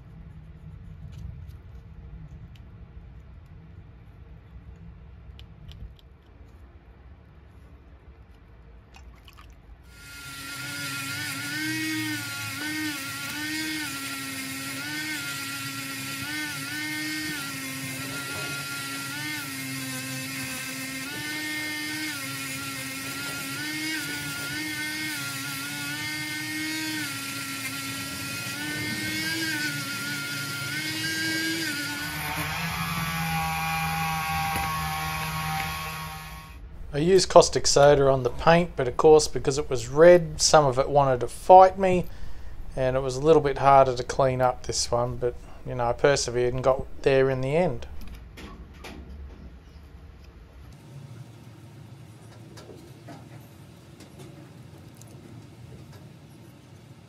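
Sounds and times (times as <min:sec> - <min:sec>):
rotary tool wire brush whine: 0:09.9 - 0:41.8.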